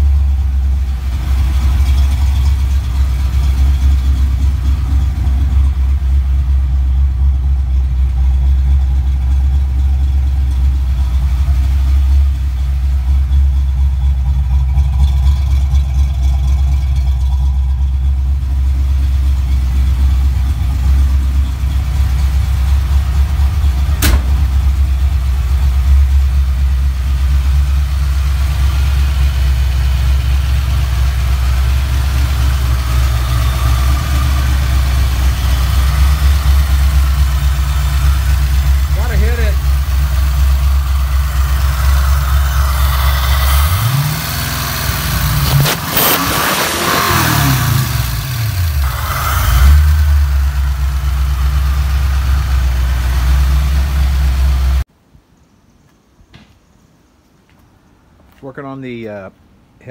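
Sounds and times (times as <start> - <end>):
car engine idling: 0.0 - 54.9
sharp click: 24.0 - 24.5.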